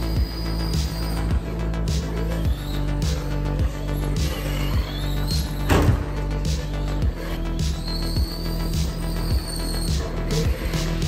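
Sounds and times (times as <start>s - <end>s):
sustained bass notes: 0.0s - 11.0s
kick drum beat: 4.8s - 9.6s.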